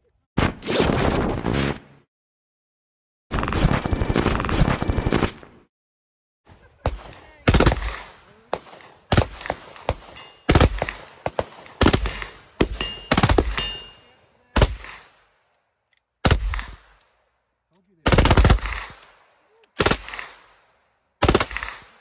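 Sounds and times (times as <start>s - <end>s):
rifle shots: 6.8s - 14.0s, 16.2s - 17.0s, 18.0s - 20.6s, 21.2s - 22.0s.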